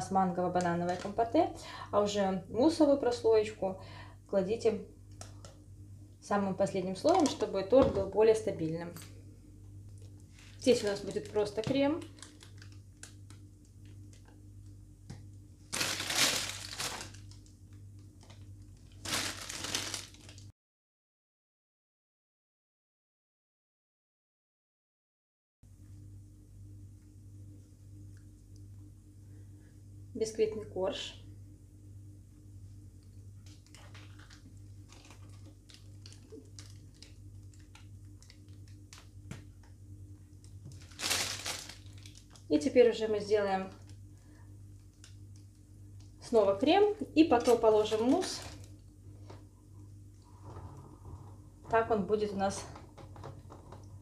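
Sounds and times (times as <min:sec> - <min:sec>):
low steady hum: 0:00.0 - 0:20.5, 0:25.7 - 0:54.0
plastic bag crinkling: 0:00.6 - 0:01.3, 0:06.9 - 0:07.6, 0:10.3 - 0:14.4, 0:15.7 - 0:20.5, 0:33.5 - 0:39.2, 0:40.4 - 0:42.5, 0:47.3 - 0:48.8.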